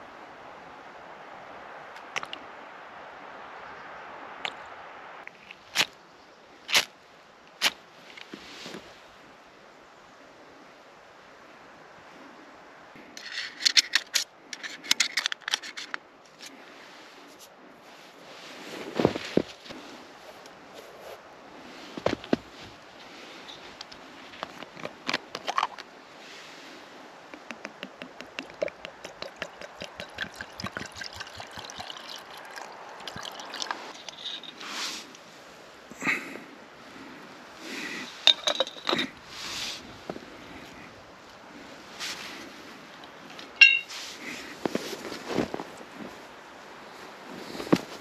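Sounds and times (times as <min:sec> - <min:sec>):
water pouring into metal pot: 0:28.4 - 0:34.2.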